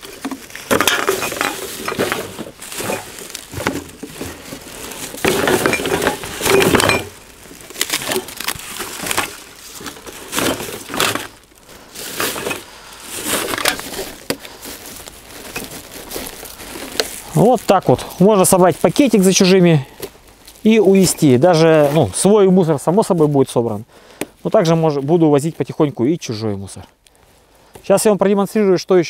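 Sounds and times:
bottles clinking and rattling: 0:00.0 - 0:07.3, 0:08.0 - 0:11.4, 0:12.1 - 0:17.2
plastic bag rustling: 0:00.0 - 0:27.9.

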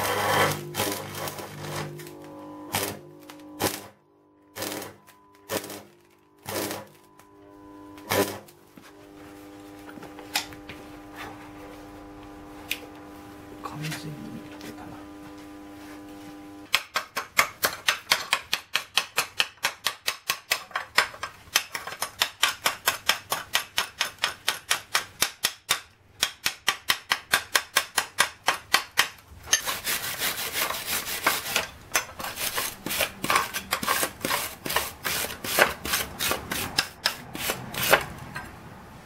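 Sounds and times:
chipping hammer tapping metal: 0:00.0 - 0:03.9, 0:04.5 - 0:07.0, 0:16.7 - 0:29.7, 0:31.2 - 0:38.1.

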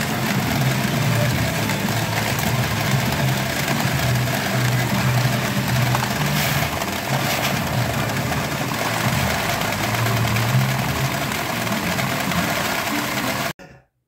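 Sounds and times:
many machines' electronic sounds: 0:00.0 - 0:13.6.

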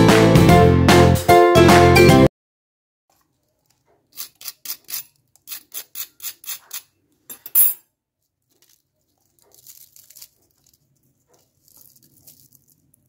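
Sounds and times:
crisp fried snack crackling: 0:08.2 - 0:13.0.

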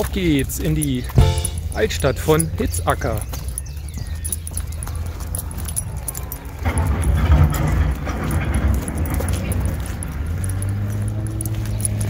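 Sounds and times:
light jingling clicks: 0:00.0 - 0:12.0.

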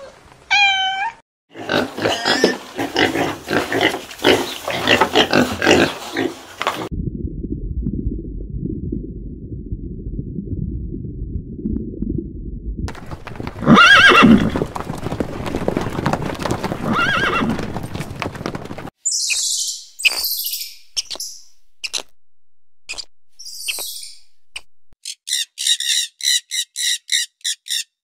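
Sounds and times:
muffled low rumble: 0:06.9 - 0:12.9
horse whinnying: 0:13.0 - 0:18.0
high-pitched chirps: 0:19.0 - 0:22.1, 0:22.9 - 0:27.6.

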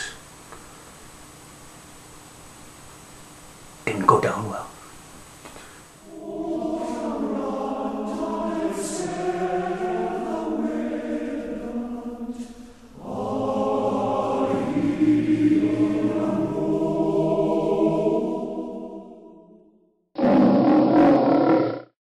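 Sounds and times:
choir singing: 0:06.0 - 0:19.8.

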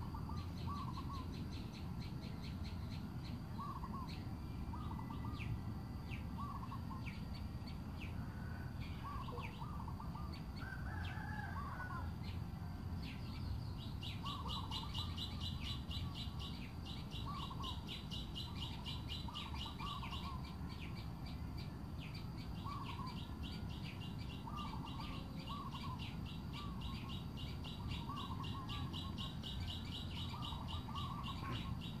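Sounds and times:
birds rising call notes: 0:00.0 - 0:12.5, 0:13.1 - 0:32.0
high pulsing bird trill: 0:13.8 - 0:32.0.

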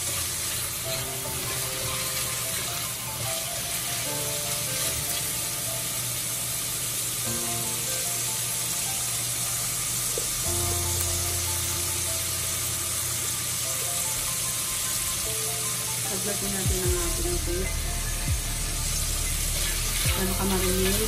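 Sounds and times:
background music with held notes: 0:00.0 - 0:21.0
vegetables sizzling in hot oil: 0:00.0 - 0:21.0.

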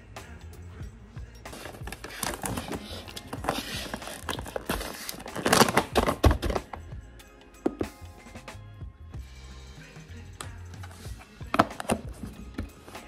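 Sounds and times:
plastic pouch crinkling: 0:01.5 - 0:06.3.

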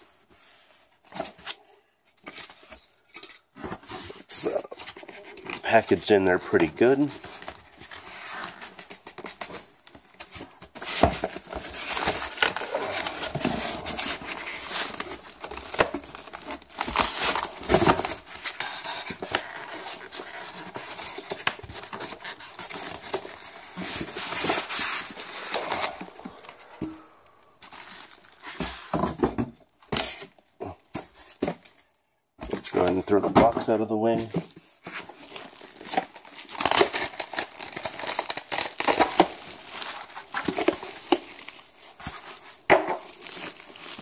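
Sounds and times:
cardboard and styrofoam rustling: 0:00.0 - 0:44.0
plastic wrap crinkling: 0:02.2 - 0:29.0, 0:29.7 - 0:44.0.

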